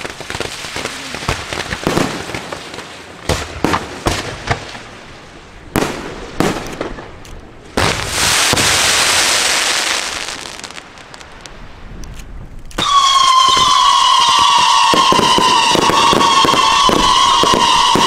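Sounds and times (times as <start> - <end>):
hissing rush of ground fireworks: 0.0 - 18.0
firework shells bursting: 10.2 - 18.0.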